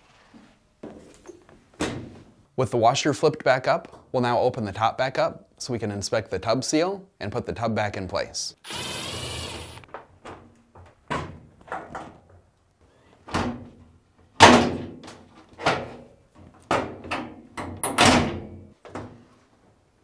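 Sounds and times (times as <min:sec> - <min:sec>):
cordless drill whirring: 0:08.6 - 0:09.9.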